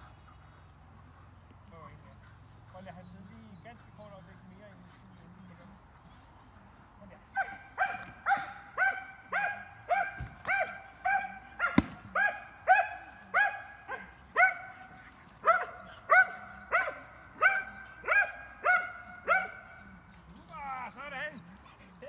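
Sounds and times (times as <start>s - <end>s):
dog barking rhythmically: 7.4s - 19.8s
sharp crack: 11.7s - 12.1s.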